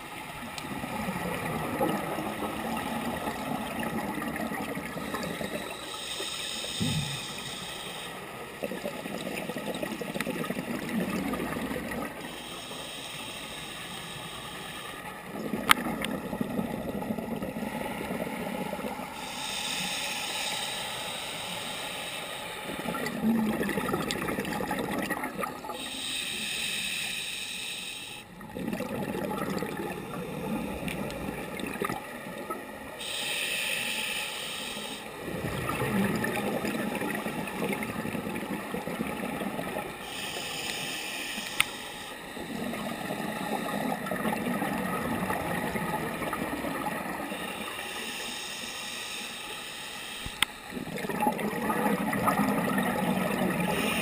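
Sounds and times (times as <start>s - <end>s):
regulator hissing inhale: 5.0s - 8.4s, 12.2s - 15.1s, 19.2s - 22.8s, 25.8s - 28.3s, 33.0s - 35.2s, 40.0s - 43.8s, 47.3s - 50.7s, 53.7s - 54.0s.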